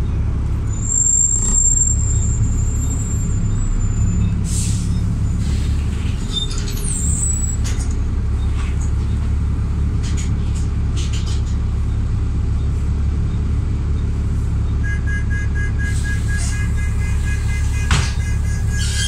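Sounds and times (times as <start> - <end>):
diesel engine idling: 0.0 - 19.0.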